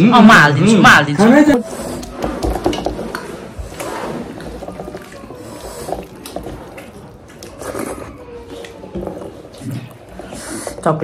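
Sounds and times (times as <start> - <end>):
fingers mixing rice on metal plate: 1.6 - 11.0
person chewing: 3.0 - 10.8.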